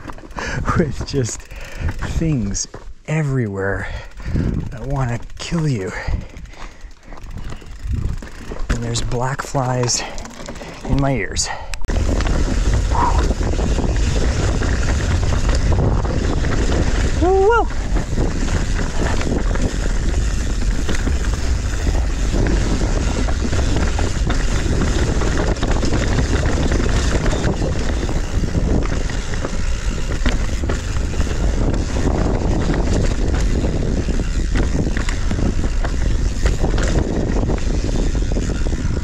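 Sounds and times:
bike clattering over rocks: 0:00.0 - 0:02.9, 0:04.2 - 0:39.0
tyre and wind rumble: 0:00.0 - 0:39.0.

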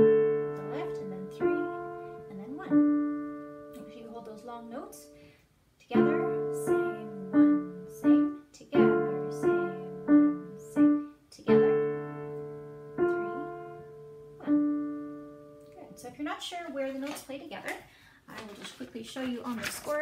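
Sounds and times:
digital piano playing: 0:00.0 - 0:04.4, 0:05.9 - 0:16.0.

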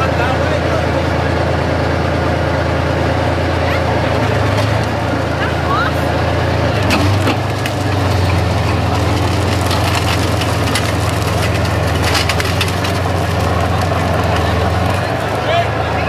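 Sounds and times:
diesel engine idling: 0:00.0 - 0:16.0
irregular crackling: 0:06.8 - 0:15.4.

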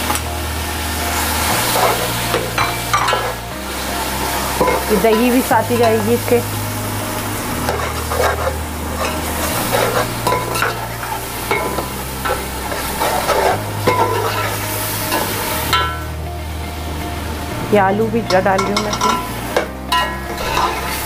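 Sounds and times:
hot oil sizzling: 0:00.0 - 0:21.0
ladle scraping metal pot: 0:01.2 - 0:06.4, 0:07.1 - 0:16.1, 0:19.9 - 0:21.0.

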